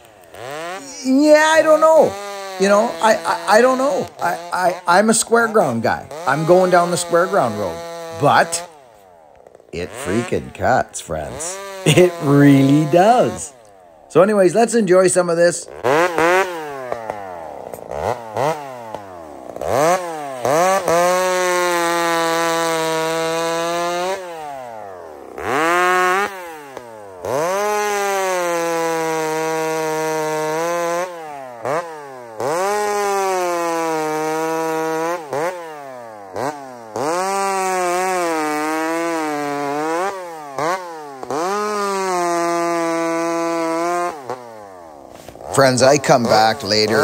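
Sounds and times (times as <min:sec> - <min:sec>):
chainsaw cutting log: 0:00.0 - 0:47.0.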